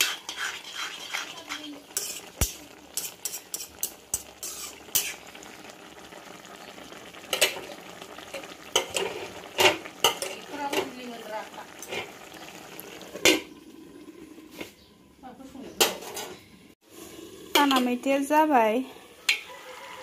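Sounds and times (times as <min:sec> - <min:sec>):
metal spoon clinking on pan: 0:00.0 - 0:05.1, 0:08.8 - 0:10.9, 0:19.3 - 0:19.5
curry bubbling and sizzling: 0:00.0 - 0:20.0.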